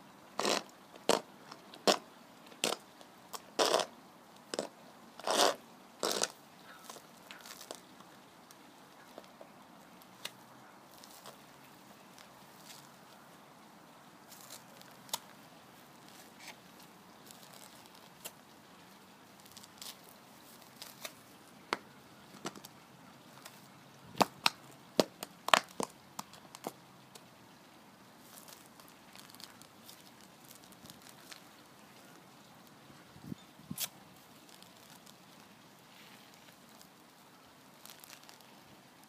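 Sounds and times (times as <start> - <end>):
boots stepping on grass: 10.2 - 13.1, 14.3 - 15.4.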